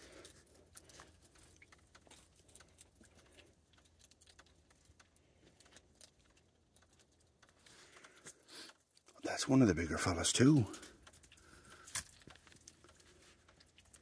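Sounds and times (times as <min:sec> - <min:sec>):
skunk eating with small clicks: 0:00.0 - 0:14.0.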